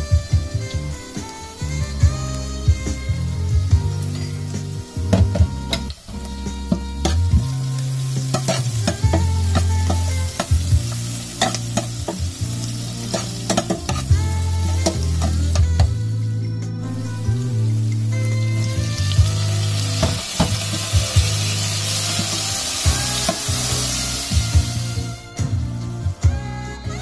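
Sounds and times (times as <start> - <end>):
onions sizzling in oil: 0.0 - 26.9
utensil clicking and scraping pot: 5.1 - 16.0.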